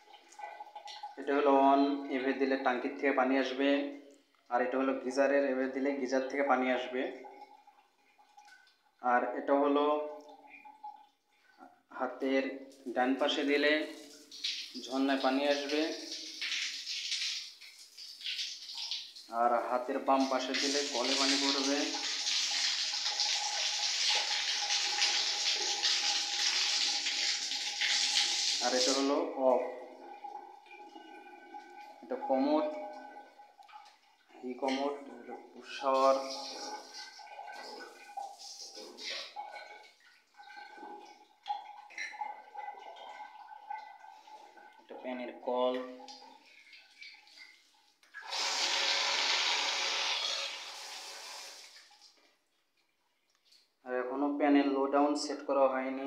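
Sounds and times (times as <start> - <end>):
water running from a tap: 13.8 - 19.3, 20.0 - 29.2, 35.6 - 44.5, 48.2 - 52.2.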